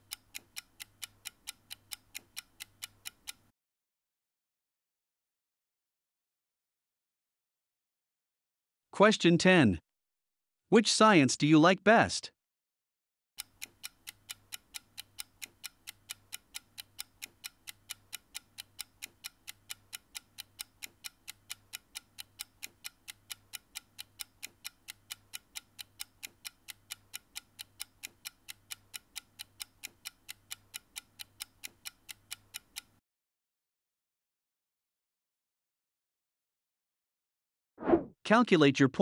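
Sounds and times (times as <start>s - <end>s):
clock ticking: 0.0s - 3.5s, 13.4s - 33.0s.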